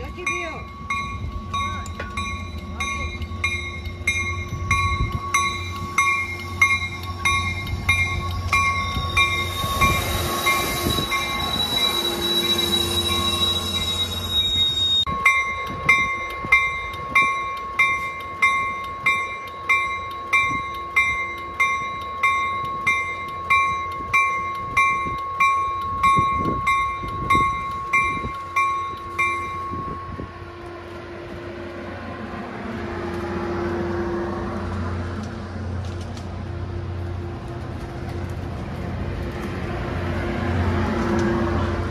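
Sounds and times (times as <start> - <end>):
train bell ringing: 0.0 - 31.0
low train rumble: 0.0 - 41.9.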